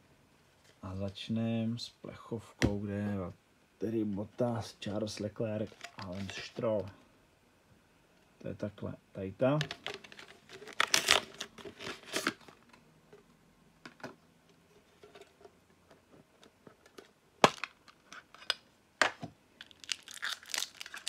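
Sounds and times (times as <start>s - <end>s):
card packs crinkling: 5.0s - 7.0s, 9.6s - 12.8s, 16.9s - 21.0s
wrappers tearing: 10.1s - 12.5s, 19.6s - 21.0s.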